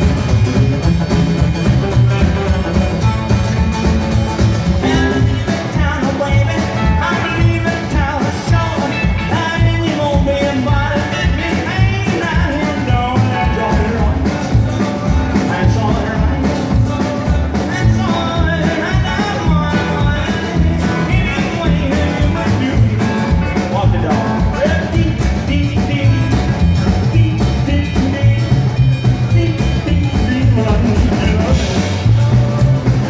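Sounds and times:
rock and roll band playing: 0.0s - 33.0s.

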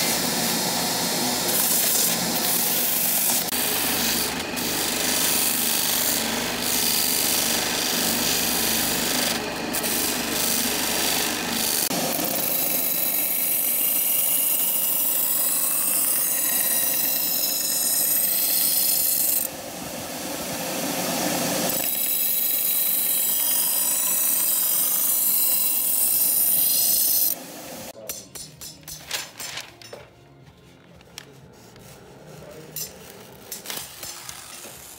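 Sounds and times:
knife grinding on belt grinder: 32.6s - 34.9s.

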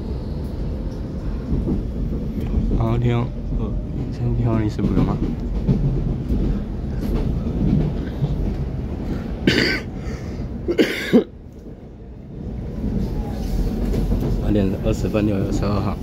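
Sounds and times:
train wheels rumbling: 0.0s - 16.0s
person coughing: 9.4s - 10.0s, 10.7s - 11.3s.

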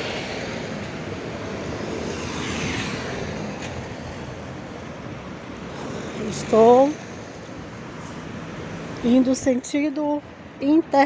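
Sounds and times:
car driving past: 0.0s - 4.4s
van driving past: 0.0s - 4.9s.

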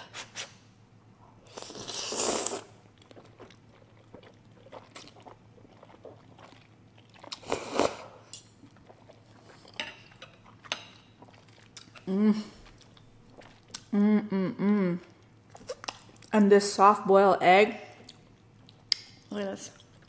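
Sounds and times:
noodles slurped: 1.4s - 9.8s, 10.4s - 13.9s
chewing: 1.6s - 13.9s, 15.1s - 16.4s, 17.9s - 20.0s.

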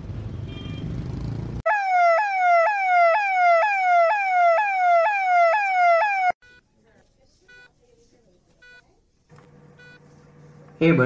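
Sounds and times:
street traffic rumble: 0.0s - 1.7s
emergency vehicle siren: 1.6s - 6.4s.

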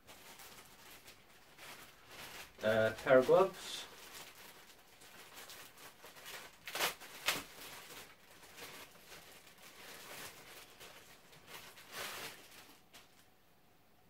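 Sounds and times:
plastic bag crinkling: 0.0s - 13.4s.

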